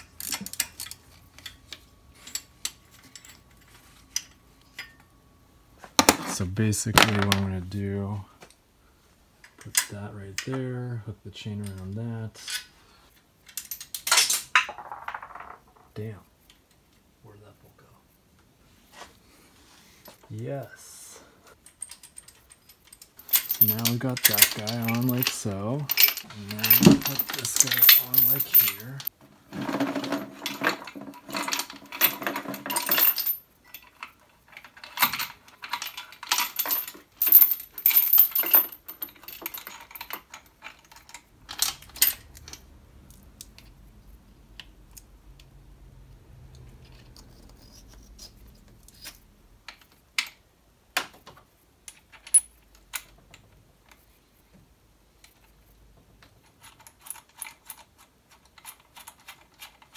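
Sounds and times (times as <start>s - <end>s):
steel chain rattling: 21.7s - 29.1s.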